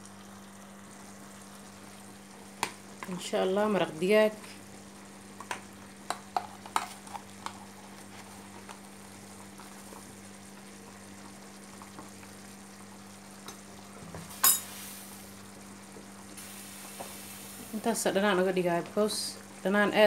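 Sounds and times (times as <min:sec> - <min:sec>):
pot bubbling: 0:00.0 - 0:20.0
sharp clink: 0:14.4 - 0:14.7.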